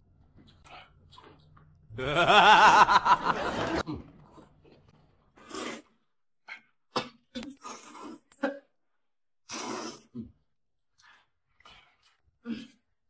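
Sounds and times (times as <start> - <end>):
person wavering vocal sound: 1.9 - 3.3
slurping noodles: 5.3 - 6.1, 7.0 - 8.6, 9.4 - 10.4.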